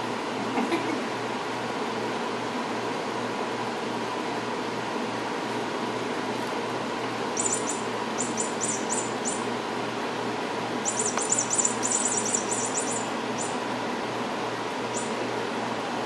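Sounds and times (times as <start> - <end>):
steady background hiss: 1.8 - 16.0.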